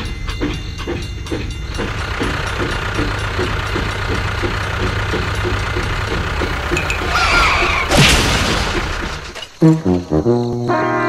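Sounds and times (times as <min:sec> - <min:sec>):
tractor engine chugging: 0:00.0 - 0:10.2
wavering squeal: 0:06.6 - 0:08.0
toy tractor crash with boom: 0:07.1 - 0:09.8.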